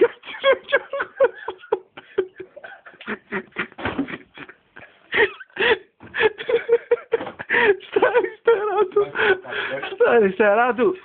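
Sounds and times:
people talking: 0:08.6 - 0:11.0.

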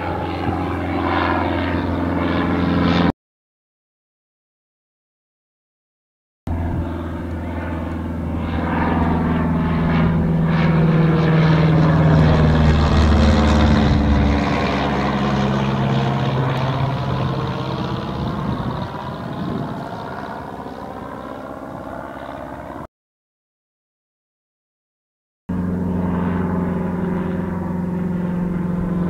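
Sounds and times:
propeller plane flying overhead: 0:00.0 - 0:03.2, 0:06.5 - 0:22.9, 0:25.5 - 0:29.0.

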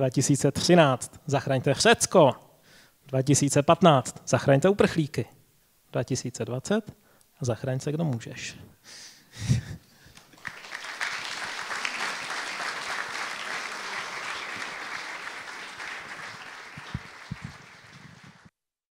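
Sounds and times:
audience applause: 0:10.1 - 0:18.5.

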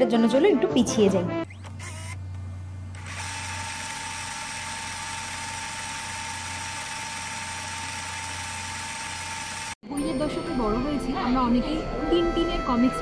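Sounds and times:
film projector whirring: 0:01.5 - 0:09.8.

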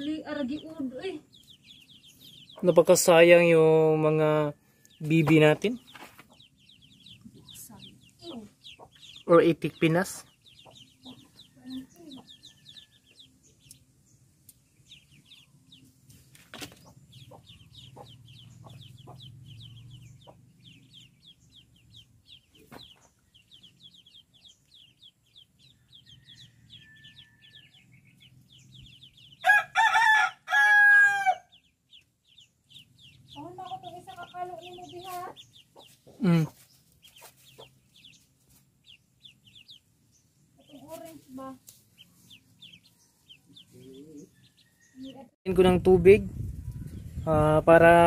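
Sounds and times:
ducklings peeping: 0:00.0 - 0:48.0
rooster crowing: 0:25.8 - 0:27.9, 0:29.4 - 0:31.6, 0:42.8 - 0:45.3.

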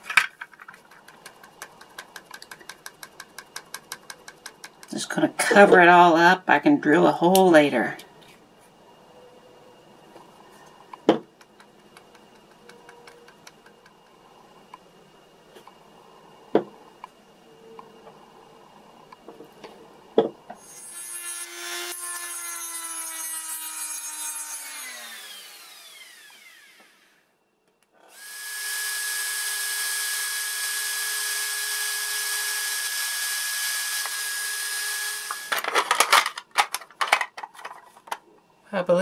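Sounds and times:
rotary tool grinding plastic: 0:31.7 - 0:38.1
clicks and knocks of handling: 0:35.5 - 0:38.3.

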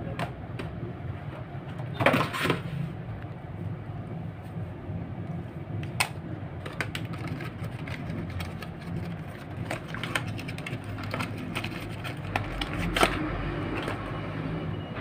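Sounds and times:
steady low hum: 0:02.6 - 0:15.0
cardboard box tapping and crinkling: 0:06.7 - 0:13.2.

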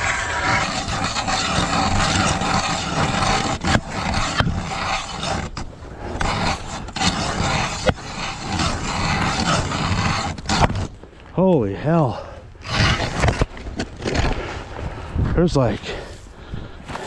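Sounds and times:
ice auger drilling: 0:00.0 - 0:10.9.

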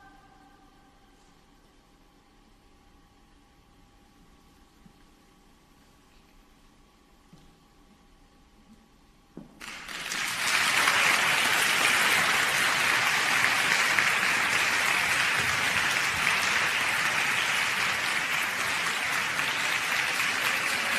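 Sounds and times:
audience applauding: 0:09.6 - 0:20.9.

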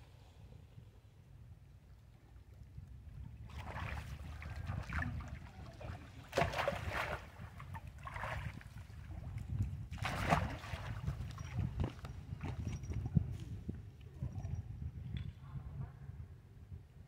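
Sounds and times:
wind rumble on microphone: 0:00.0 - 0:17.0
water splashing and sloshing: 0:03.1 - 0:13.0.

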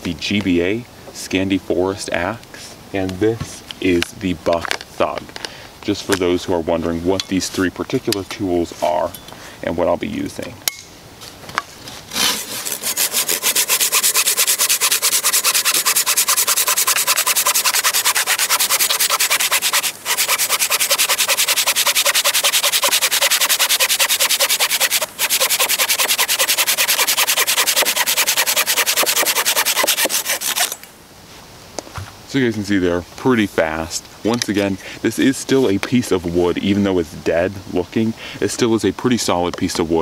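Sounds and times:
folding saw cutting log: 0:12.0 - 0:30.9.

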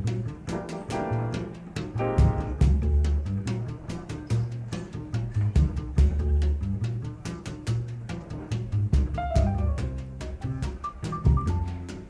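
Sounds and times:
instrumental music with deep bass: 0:00.0 - 0:12.0.

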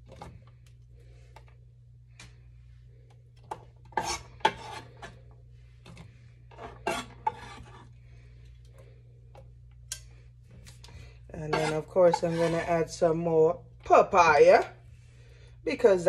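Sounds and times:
knife scraping on cutting board: 0:03.9 - 0:05.2, 0:06.5 - 0:07.9, 0:11.4 - 0:12.9.

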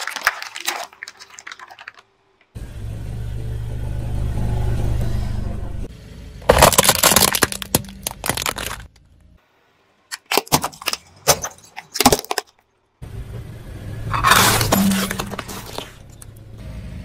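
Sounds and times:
plastic toys crackling under tyre: 0:00.0 - 0:02.5, 0:06.5 - 0:09.0
sharp cracks of plastic breaking: 0:06.5 - 0:08.9, 0:10.1 - 0:12.6.

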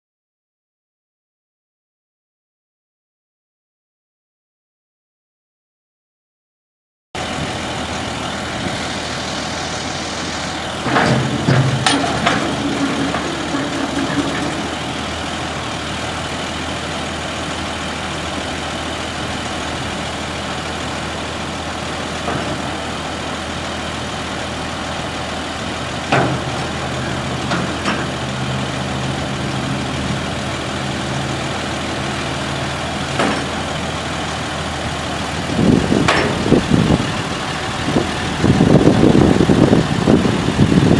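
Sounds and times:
diesel truck idling: 0:07.2 - 0:40.9
plow blade clunks: 0:07.9 - 0:17.1, 0:20.4 - 0:38.1.

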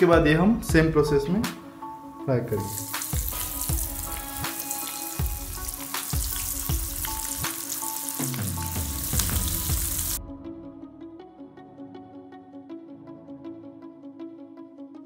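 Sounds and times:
onion rings sizzling in hot oil: 0:02.6 - 0:10.2.

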